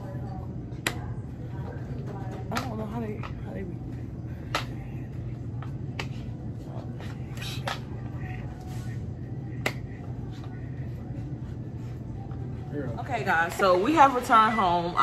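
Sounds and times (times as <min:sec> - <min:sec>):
low hum: 0:00.0 - 0:15.0.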